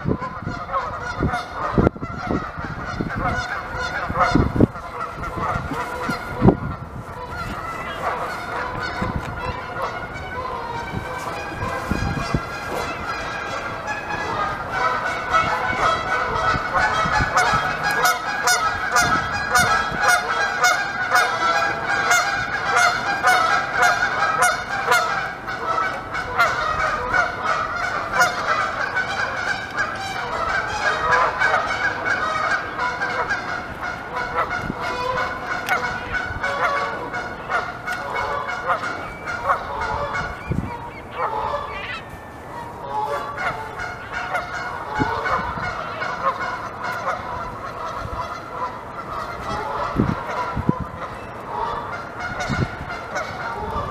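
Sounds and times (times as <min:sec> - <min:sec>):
geese honking: 0:00.0 - 0:53.9
beavers gnawing bark: 0:04.8 - 0:13.7.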